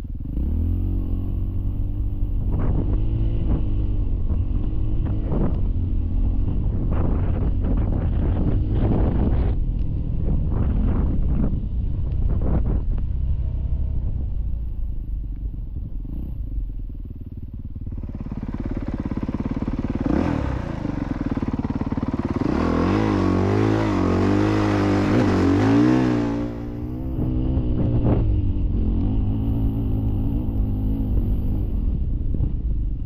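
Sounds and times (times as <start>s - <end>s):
dirt bike engine revving: 17.9s - 31.7s.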